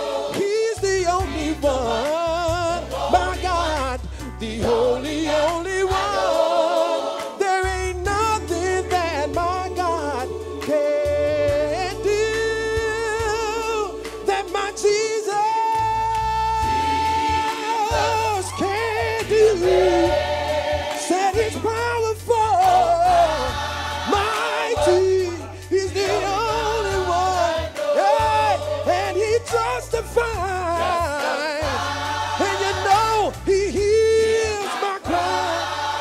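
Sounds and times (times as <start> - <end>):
man singing lead vocal: 0.0 - 6.8, 7.4 - 20.2, 21.0 - 23.5, 24.1 - 31.8, 32.4 - 35.6
gospel choir singing: 0.0 - 36.0
low bass accompaniment: 7.6 - 36.0.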